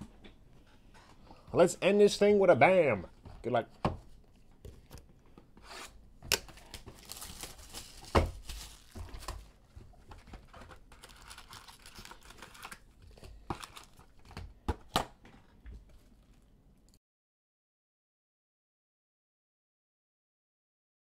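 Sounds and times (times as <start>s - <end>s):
card pack tearing: 5.7s - 9.5s, 10.5s - 12.9s, 13.5s - 14.3s
foil wrapper crinkling: 6.4s - 14.4s.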